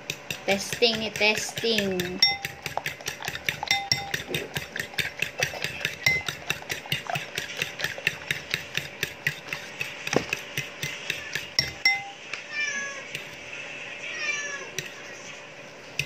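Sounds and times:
fork beating eggs in a bowl: 0.0s - 16.0s
short ringing chink: 11.8s - 12.2s.

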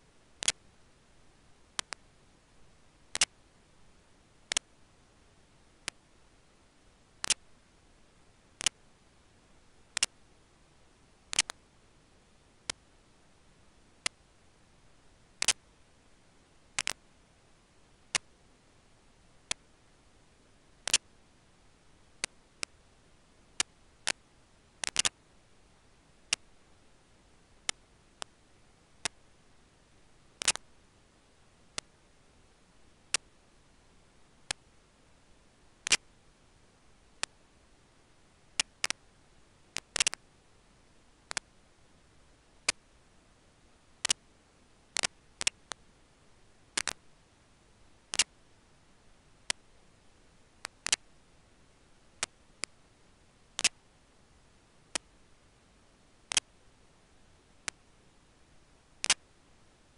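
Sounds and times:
faint steady hiss: 0.0s - 59.9s
sharp single clicks: 1.8s - 2.0s, 3.1s - 3.4s, 10.0s - 10.2s, 11.3s - 11.6s, 15.4s - 15.6s, 20.8s - 21.1s, 24.8s - 25.2s, 30.4s - 30.6s, 35.8s - 36.0s, 39.8s - 40.2s, 46.8s - 47.0s, 53.6s - 53.8s, 59.0s - 59.2s.

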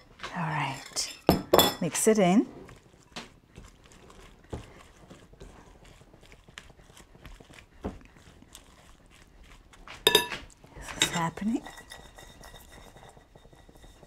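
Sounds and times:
spatula scraping glass bowl: 10.0s - 14.0s.

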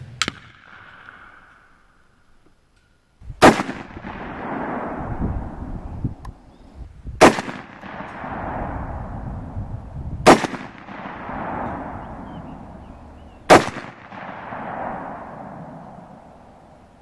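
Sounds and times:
rifle shots with echo: 0.2s - 1.8s, 3.4s - 5.7s, 7.2s - 9.6s, 10.2s - 16.6s.

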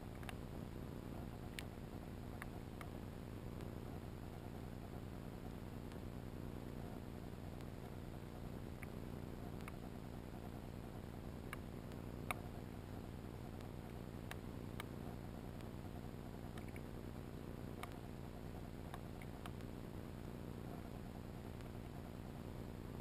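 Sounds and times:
sharp underwater clicks: 0.1s - 0.4s, 8.7s - 9.9s, 16.5s - 16.9s, 17.8s - 18.1s.

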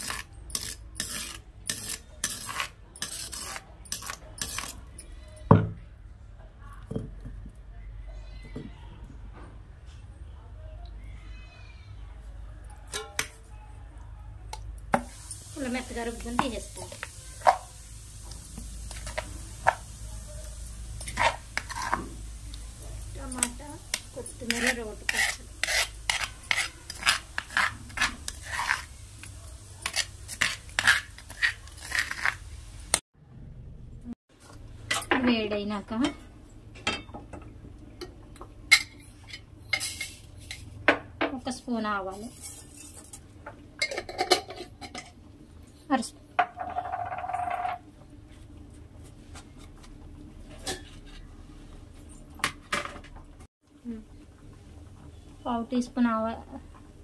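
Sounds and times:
spoon scraping stone mortar: 0.0s - 5.1s, 21.0s - 22.2s, 23.3s - 33.0s.

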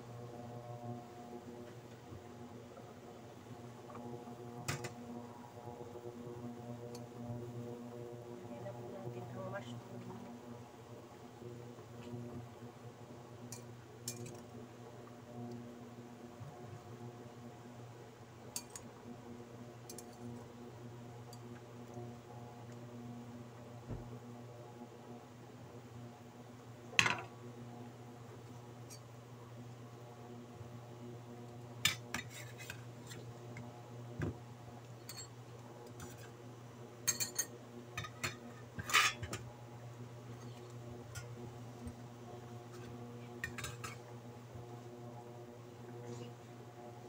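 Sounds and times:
low electrical hum: 0.0s - 47.0s
utensils clinking on pot and dishes: 35.1s - 35.3s, 37.1s - 39.4s.

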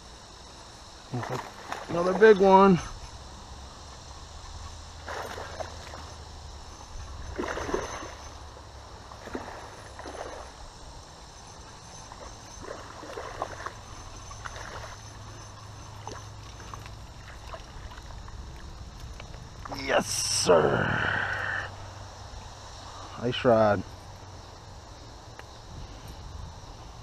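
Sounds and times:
fish splashing at water surface: 5.0s - 6.1s, 7.3s - 8.2s, 12.6s - 13.8s.

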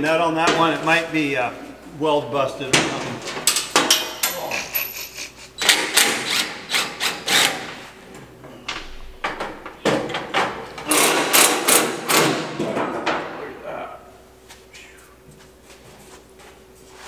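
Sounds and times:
metal clanks and knocks: 2.7s - 4.5s, 8.7s - 13.4s.

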